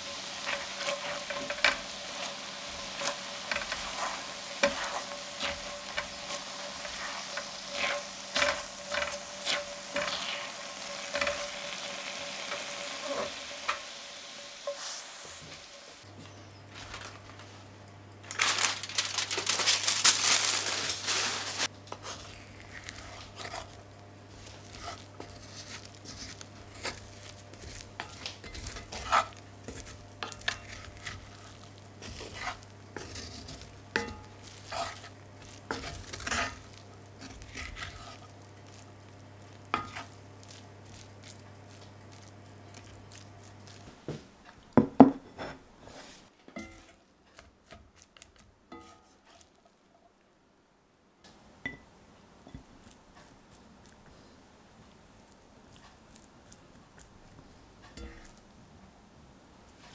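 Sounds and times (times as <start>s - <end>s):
aluminium foil crinkling: 0.0s - 13.8s, 16.7s - 17.6s, 18.2s - 44.1s
rice sizzling in a skillet: 0.0s - 16.1s, 18.3s - 49.8s, 51.3s - 58.5s.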